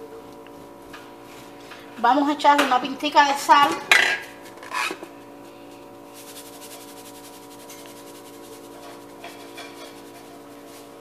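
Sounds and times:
steady hum: 0.0s - 11.0s
salt shaken into a pan: 6.1s - 11.0s.

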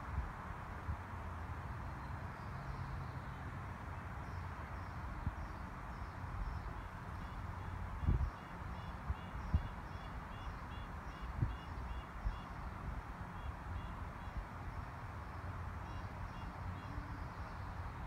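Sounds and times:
wind rumble on microphone: 0.0s - 2.5s, 4.3s - 18.0s
breeze rustling leaves: 0.0s - 18.0s.

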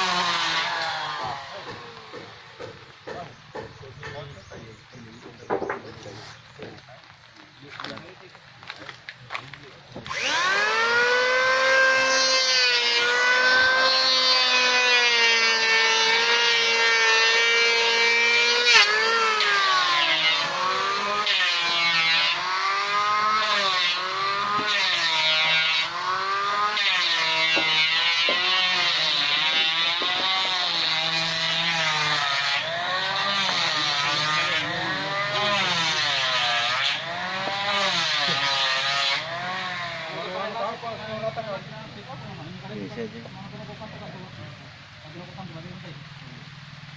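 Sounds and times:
power tool whining: 0.0s - 2.9s, 9.9s - 41.1s.

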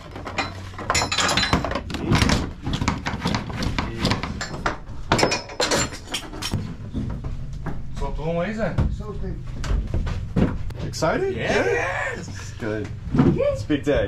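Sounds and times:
metal hooks and ratchets clanking: 0.0s - 2.4s, 4.4s - 6.6s.

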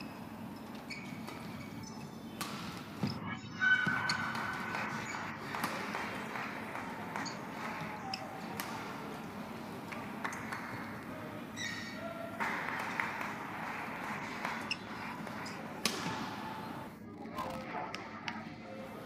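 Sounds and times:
racket striking shuttlecock: 2.4s - 3.1s, 8.4s - 9.1s, 15.2s - 16.4s
hall noise: 2.8s - 17.0s
shoe squeak on court: 3.0s - 5.2s.

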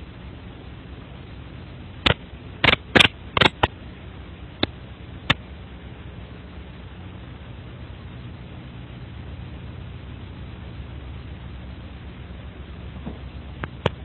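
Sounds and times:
steady low hum and hiss: 0.0s - 14.0s
sharp irregular clicks: 2.0s - 3.7s.

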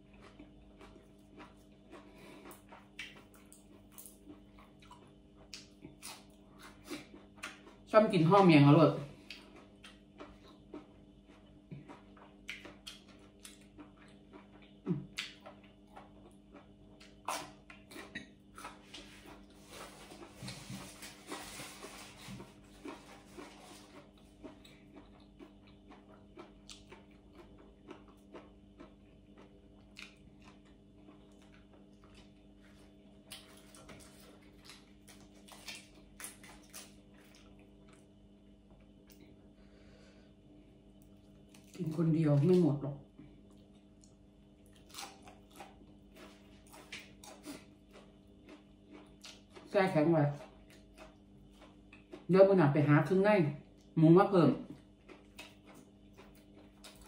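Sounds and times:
faint steady hum: 0.0s - 57.0s
wet chewing clicks: 0.1s - 7.9s, 9.2s - 19.5s, 22.8s - 32.3s, 43.4s - 52.3s, 54.7s - 57.0s
crunching raw vegetables: 9.1s - 39.5s, 40.7s - 52.4s, 54.6s - 57.0s.

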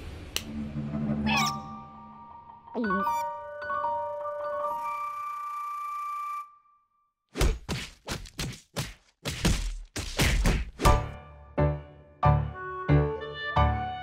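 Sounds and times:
film score music: 0.0s - 6.8s, 10.3s - 14.0s.

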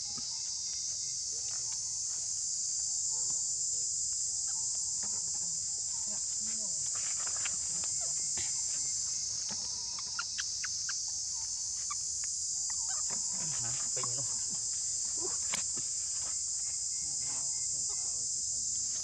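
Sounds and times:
insect chorus drone: 0.0s - 19.0s.

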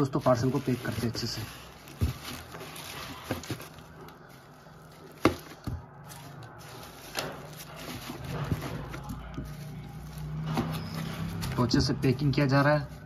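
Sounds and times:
plastic wrap rustling: 0.0s - 13.0s
boards knocking against cardboard: 5.2s - 5.8s.

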